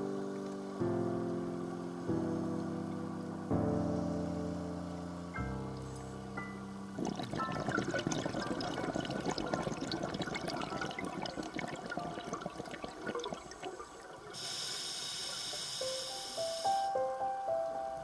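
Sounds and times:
scuba exhaled bubbles gurgling: 6.9 - 15.8
regulator inhalation hiss: 14.3 - 17.1.

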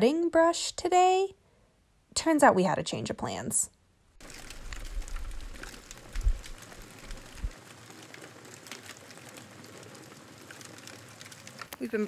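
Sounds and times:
low rumble with thump: 4.2 - 7.6
fire crackling and popping: 4.2 - 12.0.

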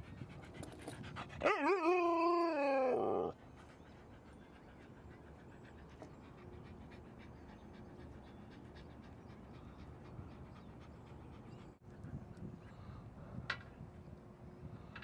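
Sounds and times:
dog panting: 3.6 - 12.1.

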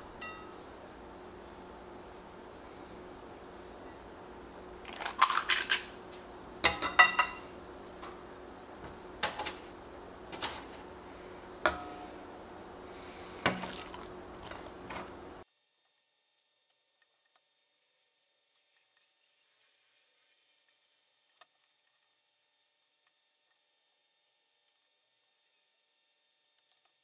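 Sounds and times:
metal scoop clinking on glass bowl: 0.2 - 0.6, 6.6 - 7.5.

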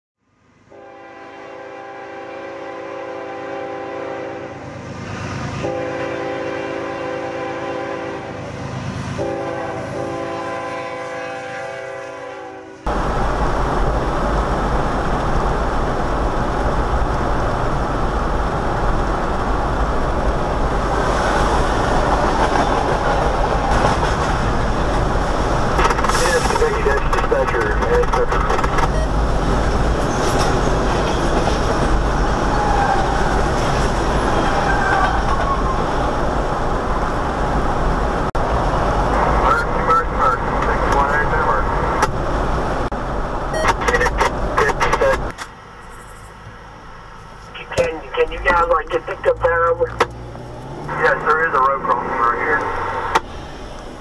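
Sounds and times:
locomotive air horn blasts: 0.7 - 4.6, 5.6 - 8.4, 9.2 - 12.9
road and engine noise in car: 40.2 - 54.0.

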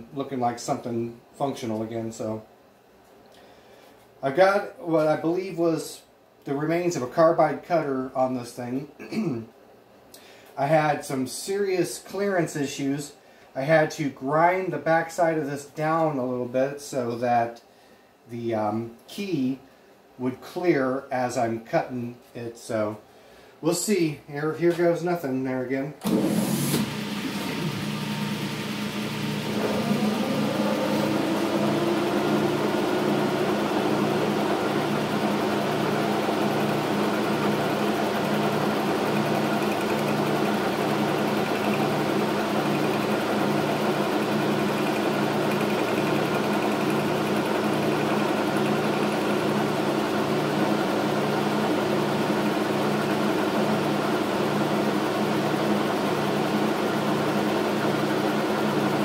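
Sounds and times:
metal lathe humming: 26.1 - 55.0.

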